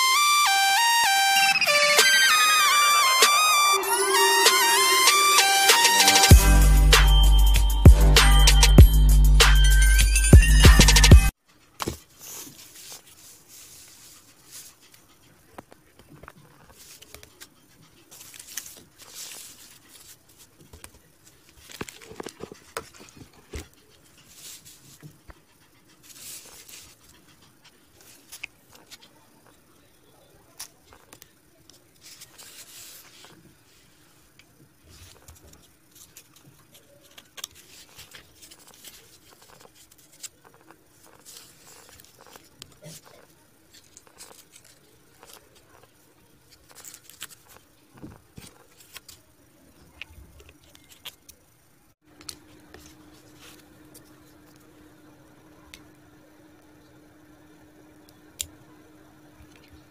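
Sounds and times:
cardboard rustling and scraping: 11.8 - 25.2.

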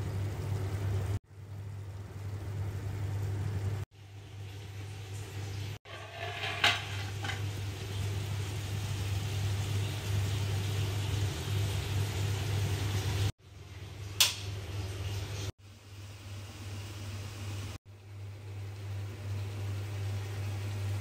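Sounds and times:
curry sizzling in wok: 0.0 - 21.0
metal lid clinking: 5.9 - 7.5.

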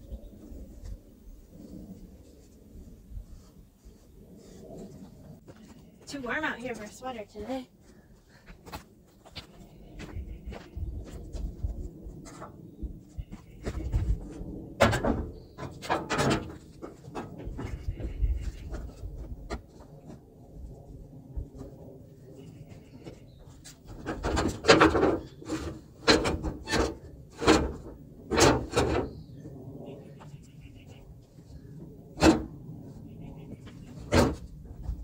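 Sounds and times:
scraping and rubbing on metal: 22.4 - 29.2.

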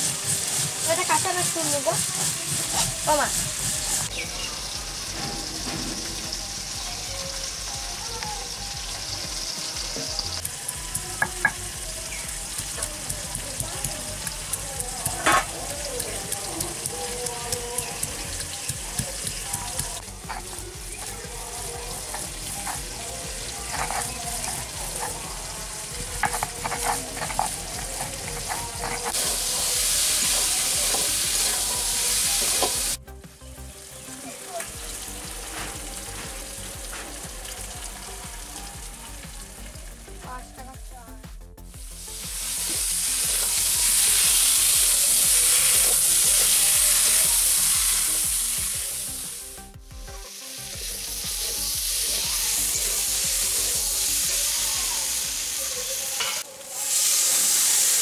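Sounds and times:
spatula stirring: 0.0 - 4.1, 10.1 - 33.0, 42.0 - 48.9
stone roller scraping on stone: 0.0 - 4.1, 25.9 - 29.4
vegetables sizzling in a pan: 0.0 - 58.0.

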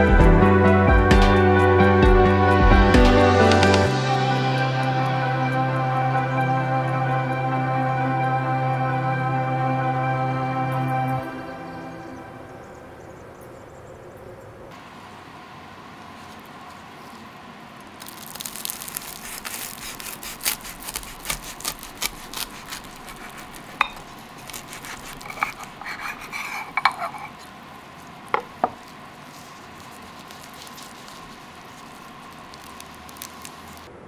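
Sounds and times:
faint steady hum: 3.1 - 34.0
toasted bread crust crackling: 16.2 - 33.9.

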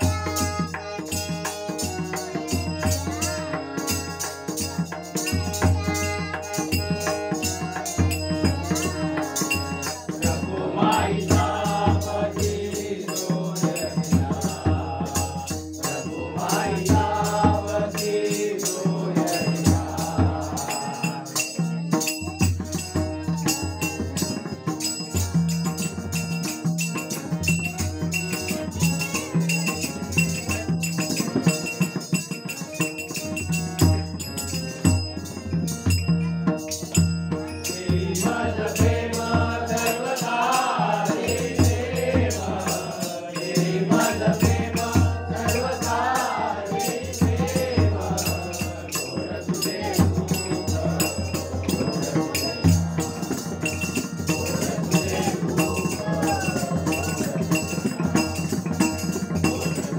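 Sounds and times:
child singing: 0.0 - 3.5, 5.2 - 7.7, 43.8 - 51.2
drum beating steady rhythm: 0.0 - 59.9
harmonium chords and melody: 0.0 - 59.9.

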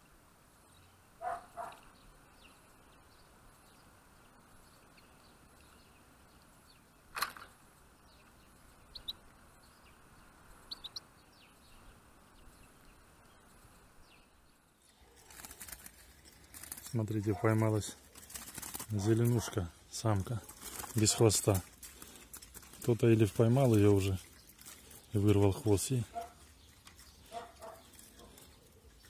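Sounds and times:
faint outdoor background: 0.0 - 29.0
high bird chirps: 8.1 - 10.0, 10.6 - 13.5.

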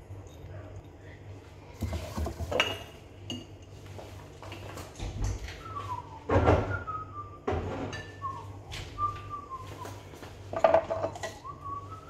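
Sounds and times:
pots and utensils clattering: 1.8 - 3.7, 7.5 - 8.4, 10.5 - 11.6
man whistling: 5.6 - 10.1, 11.3 - 12.0.

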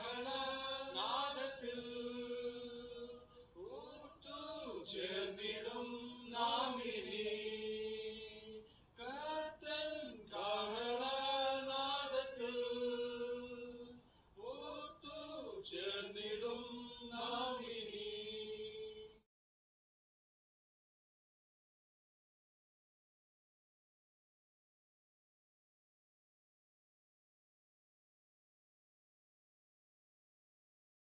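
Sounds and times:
men singing a hymn: 0.0 - 19.2.

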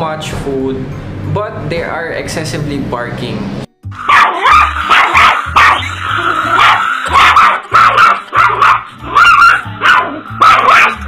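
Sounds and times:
background music with bass line: 2.1 - 11.0
small dog barking sharply: 4.1 - 5.9, 6.6 - 11.0.

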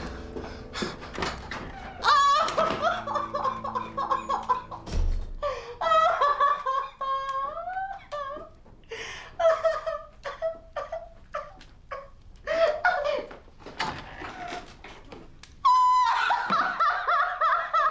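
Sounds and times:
person laughing: 2.0 - 8.6, 9.4 - 13.4.

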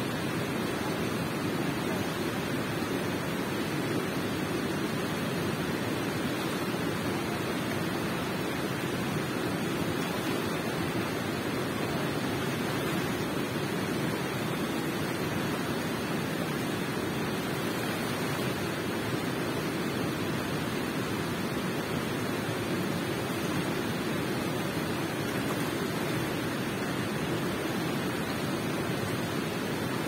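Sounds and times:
water rushing in a cave: 0.0 - 30.0.

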